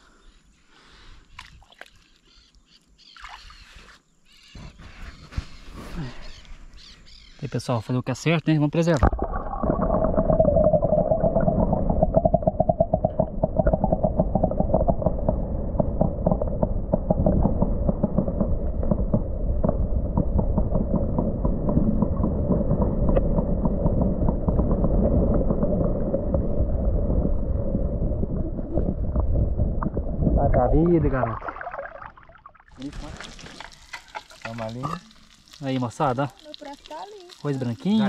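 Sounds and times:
underwater rumble of moving water: 8.9 - 38.0
small underwater clicks and knocks: 12.1 - 25.6, 32.8 - 37.5.

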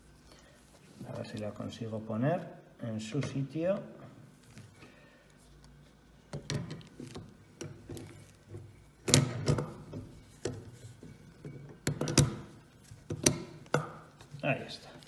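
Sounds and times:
clicks and knocks of metal parts: 6.3 - 15.0.

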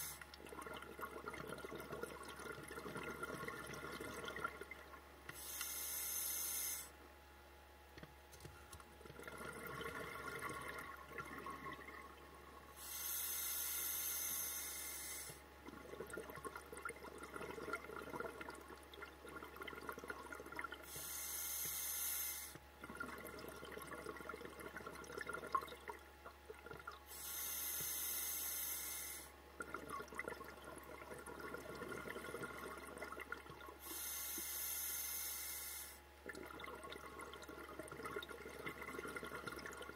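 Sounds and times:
exhaled bubbles rushing: 0.4 - 5.1, 9.0 - 12.8, 15.6 - 20.9, 22.8 - 27.1, 29.6 - 33.8, 36.2 - 39.9
regulator air hiss: 5.3 - 7.0, 12.8 - 15.4, 20.9 - 22.6, 27.1 - 29.3, 33.8 - 36.0.

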